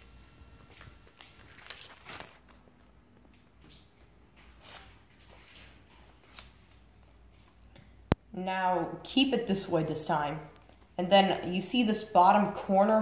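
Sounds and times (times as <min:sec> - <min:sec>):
paper rustling: 0:00.8 - 0:07.6.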